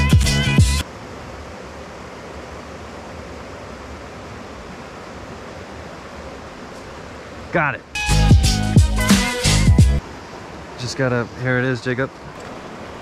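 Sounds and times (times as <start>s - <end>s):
background music: 0.0s - 0.8s, 8.0s - 10.0s
stream flowing: 0.6s - 13.0s.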